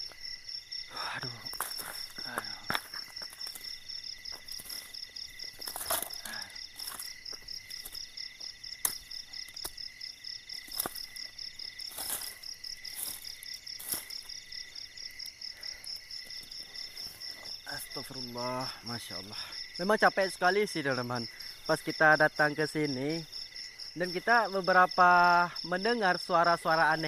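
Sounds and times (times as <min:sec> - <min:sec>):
high insect drone: 0:00.0 - 0:27.0
insects chirping: 0:00.0 - 0:27.0
dry leaves rustling and snapping: 0:01.5 - 0:08.1, 0:08.8 - 0:09.9, 0:10.5 - 0:14.3.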